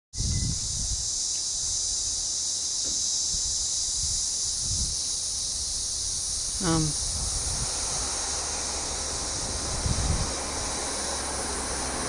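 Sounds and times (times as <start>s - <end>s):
high-pitched insect chorus: 0.2s - 12.0s
low rumble: 6.9s - 11.0s.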